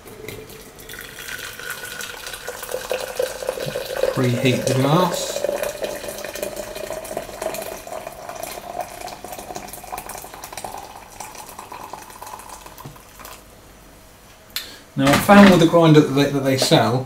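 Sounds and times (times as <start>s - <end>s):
water pouring into glass: 0.0s - 13.4s.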